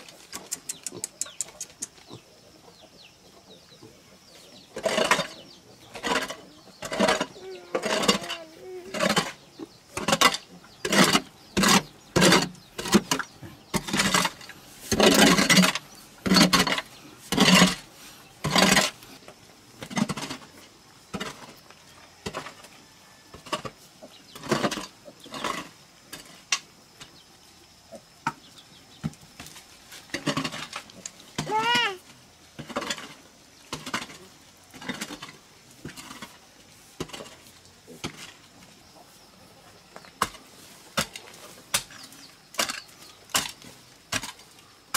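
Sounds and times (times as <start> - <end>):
scraping loose dirt: 4.4 - 27.2, 28.3 - 39.3, 39.9 - 44.9
metal hoe striking clay soil: 4.8 - 19.0, 19.8 - 20.5, 23.3 - 27.2, 30.1 - 31.8, 32.6 - 36.4, 37.0 - 38.4, 40.1 - 44.6.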